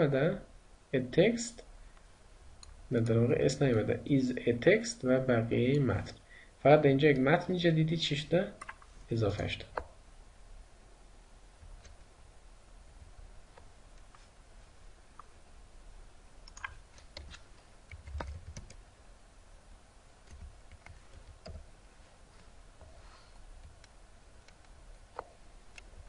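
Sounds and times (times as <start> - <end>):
faint keyboard keystrokes: 16.5 - 18.8.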